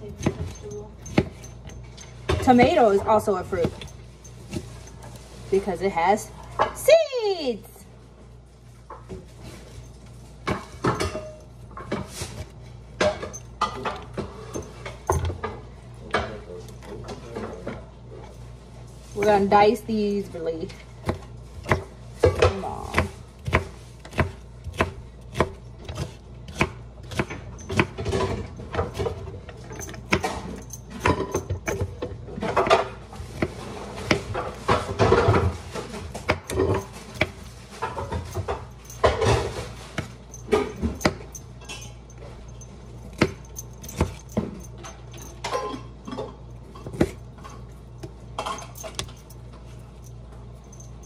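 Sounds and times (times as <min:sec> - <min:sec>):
knife chopping on wooden board: 0:21.0 - 0:29.2, 0:33.4 - 0:35.4, 0:36.1 - 0:37.4.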